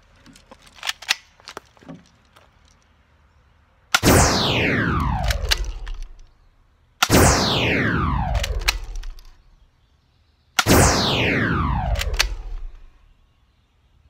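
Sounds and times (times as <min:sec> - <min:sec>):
gun handling clicks: 0:00.2 - 0:02.9, 0:05.2 - 0:06.3, 0:08.4 - 0:09.4, 0:11.9 - 0:12.9
airsoft gun shots: 0:04.0 - 0:06.2, 0:07.0 - 0:09.4, 0:10.6 - 0:13.0
loud shot sound effect: 0:04.0 - 0:06.2, 0:07.0 - 0:09.4, 0:10.6 - 0:13.1.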